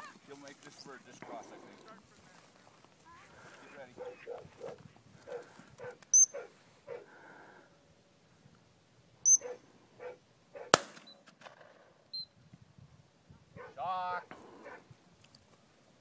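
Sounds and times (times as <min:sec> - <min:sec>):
footsteps through dry grass: 0:00.0 - 0:06.8
dog whistle blasts: 0:06.1 - 0:06.4, 0:09.2 - 0:09.6
sharp crack: 0:10.7 - 0:11.9.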